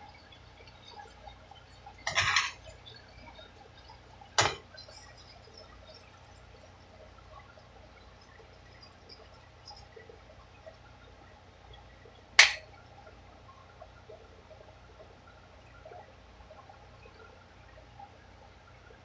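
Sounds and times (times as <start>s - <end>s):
vegetables sizzling in a pan: 2.0s - 2.8s
utensil clinking against pan: 2.1s - 2.6s, 4.4s - 4.6s, 12.4s - 12.6s.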